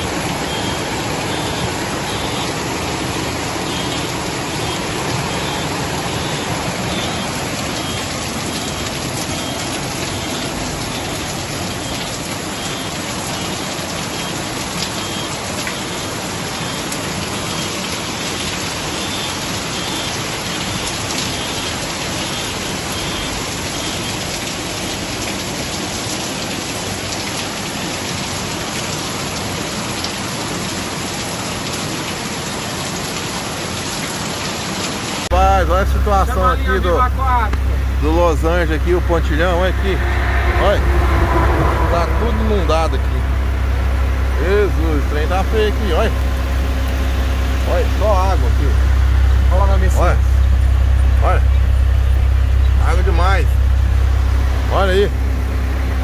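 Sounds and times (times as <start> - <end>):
floodwater rushing down street: 0.0 - 56.0
heavy rain falling: 0.0 - 56.0.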